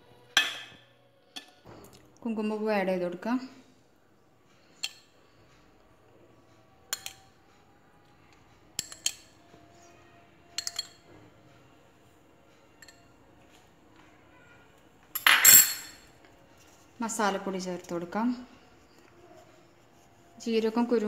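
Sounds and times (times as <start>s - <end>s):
spoon clinking against cup: 6.9s - 7.3s, 8.8s - 9.4s, 10.6s - 11.0s, 12.8s - 13.1s, 15.2s - 16.1s.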